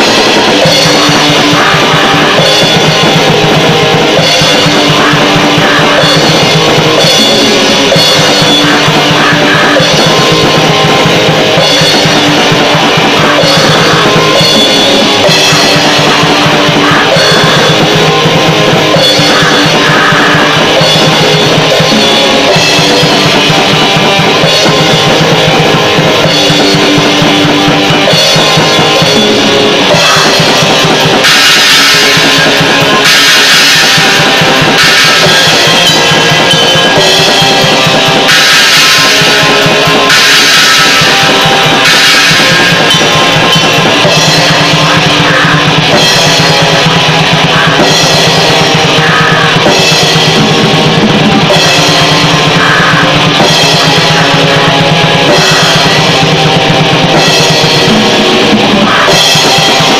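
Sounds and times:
drum kit played hard: 0.0s - 59.9s
rock band playing: 0.0s - 59.9s.

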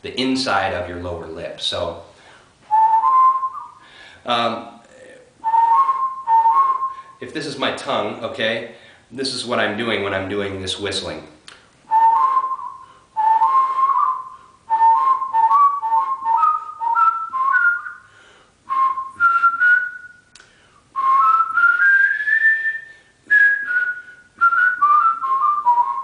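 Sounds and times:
person whistling warbling: 5.4s - 7.1s, 11.9s - 18.0s, 21.0s - 26.0s.

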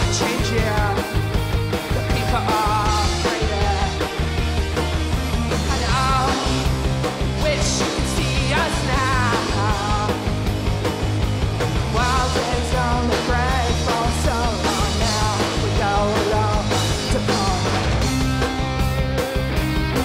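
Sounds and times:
woman singing lead: 0.0s - 4.3s, 5.5s - 6.7s, 7.3s - 10.3s, 11.8s - 18.0s
rock band playing live: 0.0s - 20.0s.

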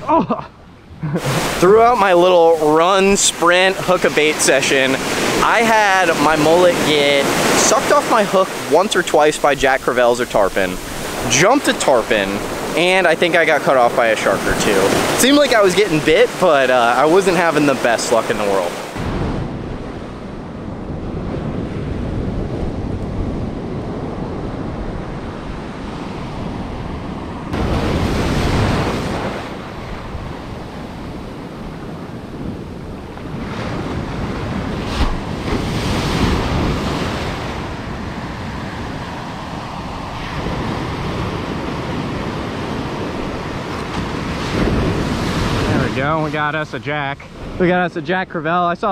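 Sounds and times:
ocean surf breaking: 0.0s - 48.9s
wind buffeting microphone: 18.8s - 47.9s.

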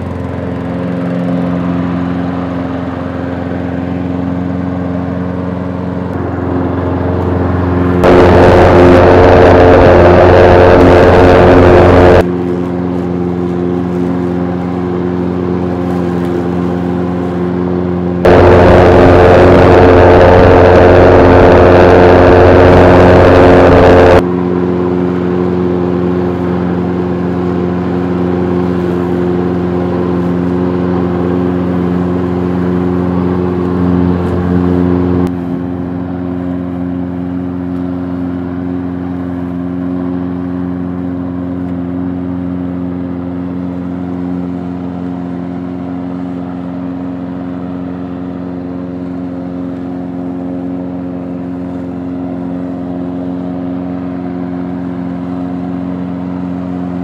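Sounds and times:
lawnmower engine mowing grass: 0.0s - 57.0s.

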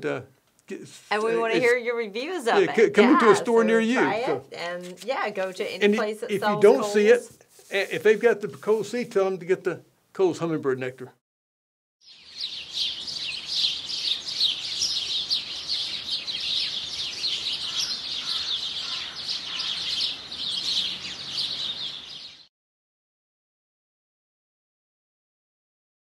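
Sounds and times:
chorus of songbirds: 12.0s - 22.5s.

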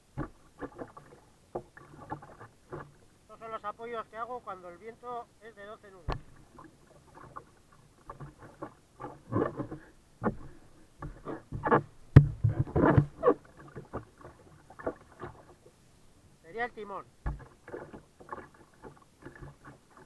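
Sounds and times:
water splashing against hull: 0.0s - 4.9s, 5.6s - 20.0s
kayak paddle strokes: 0.0s - 20.0s
knocks on kayak hull: 6.1s - 6.4s, 10.2s - 13.3s, 17.2s - 17.6s.

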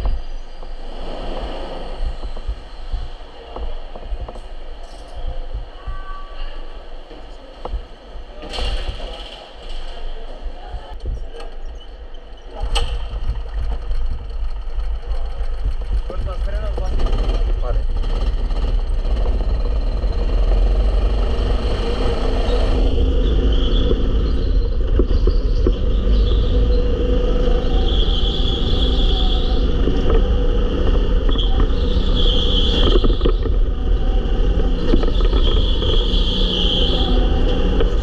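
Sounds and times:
go-kart engine running: 12.5s - 38.0s
high squeal: 21.4s - 38.0s.

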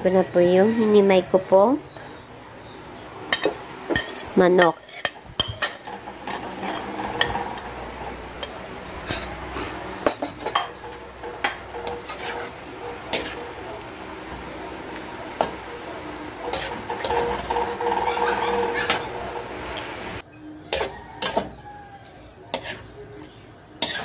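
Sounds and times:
spatula scraping metal pan: 3.3s - 19.7s, 20.7s - 21.5s, 22.5s - 23.0s, 23.8s - 24.0s.

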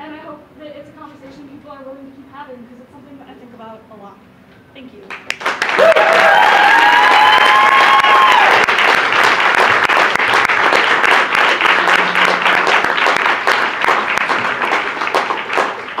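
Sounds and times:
audience applauding: 5.1s - 16.0s
whooping cheer: 5.7s - 8.8s.

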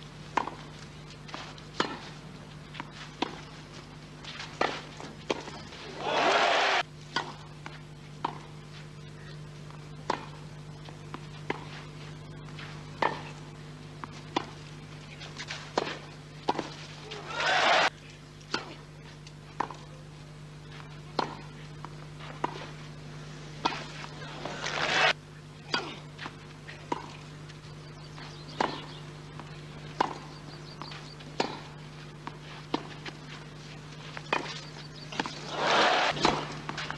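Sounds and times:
low broadcast hum: 0.0s - 36.9s
tennis ball struck with rackets: 0.4s - 0.6s, 1.8s - 2.1s, 7.1s - 7.4s, 10.0s - 10.4s, 13.0s - 13.3s, 15.4s - 16.7s, 21.1s - 21.5s, 23.6s - 27.2s, 28.6s - 33.2s, 34.3s - 36.9s.

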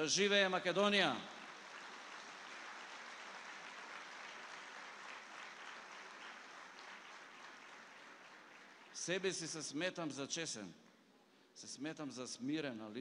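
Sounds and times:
audience applauding: 1.3s - 9.2s.

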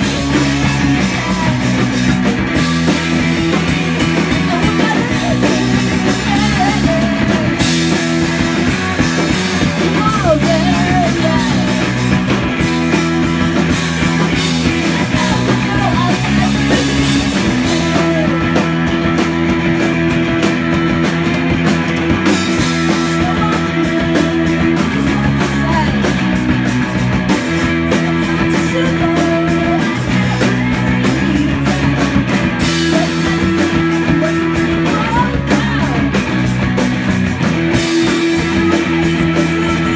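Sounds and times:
woman singing: 0.0s - 12.2s, 14.2s - 18.7s, 22.7s - 26.4s, 27.6s - 36.3s, 37.9s - 39.9s
drum kit: 0.0s - 39.9s
electric bass: 0.0s - 39.9s
electric guitar: 0.0s - 39.9s.

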